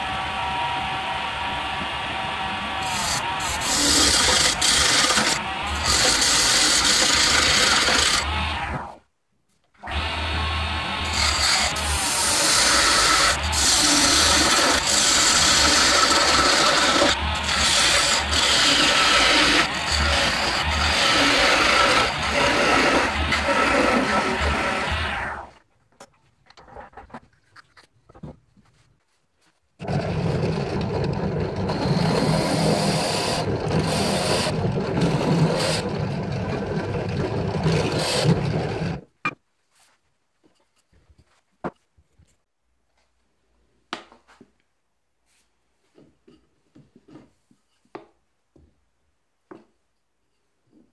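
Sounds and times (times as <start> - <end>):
lathe motor humming: 0.0 - 8.6, 9.9 - 25.4
drill press boring into wood: 0.0 - 9.0, 9.8 - 25.6, 29.8 - 39.1
chisel scraping spinning wood: 2.8 - 9.0, 10.8 - 25.6, 29.8 - 39.1.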